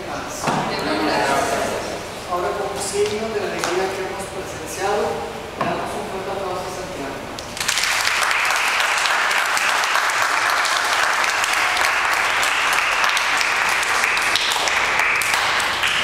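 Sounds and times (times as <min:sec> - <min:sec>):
congregation applauding: 0:07.5 - 0:16.0.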